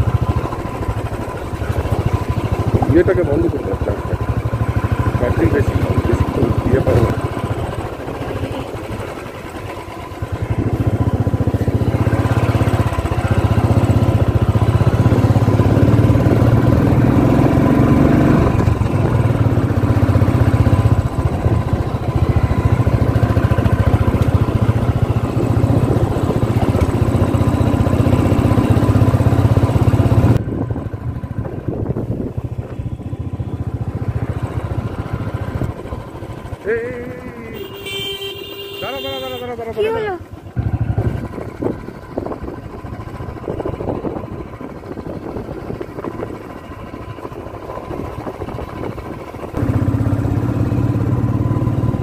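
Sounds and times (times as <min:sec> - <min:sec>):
motorbike engine running: 0:00.0 - 0:52.0
road noise: 0:00.0 - 0:52.0.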